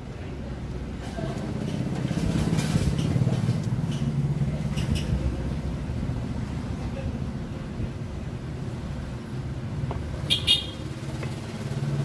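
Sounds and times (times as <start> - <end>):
low engine-like rumble: 0.0 - 12.0.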